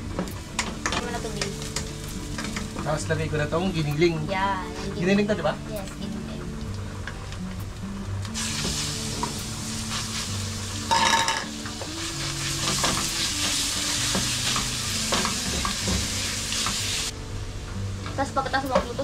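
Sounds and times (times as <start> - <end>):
meat sizzling in a pan: 0.4 - 4.3, 7.4 - 17.2.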